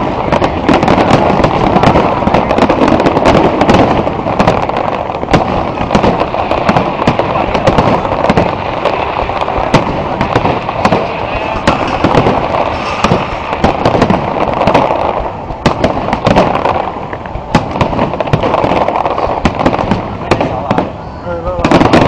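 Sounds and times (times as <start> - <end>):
fireworks bangs and crackles: 0.0 - 22.0.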